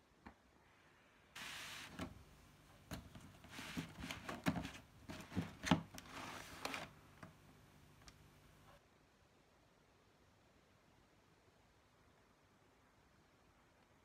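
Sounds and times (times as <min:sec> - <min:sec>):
cardboard box scraping on rug: 0:03.4 - 0:06.9.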